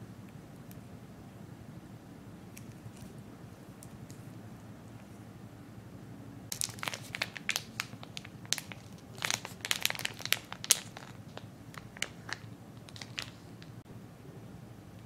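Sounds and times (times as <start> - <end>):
plastic wrapping film crinkling: 6.5 - 13.8.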